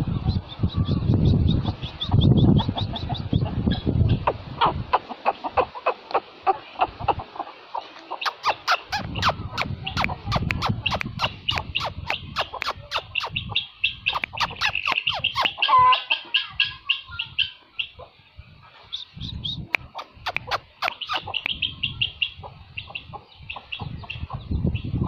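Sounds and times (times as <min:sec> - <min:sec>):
poultry chirping: 0:00.0 - 0:25.0
poultry squawk: 0:08.1 - 0:18.0, 0:19.9 - 0:22.4.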